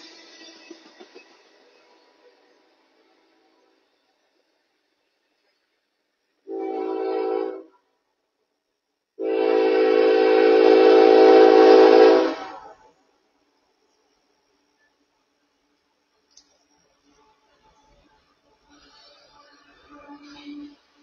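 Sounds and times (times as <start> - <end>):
locomotive air horn blasts: 6.5 - 7.8, 9.2 - 12.9.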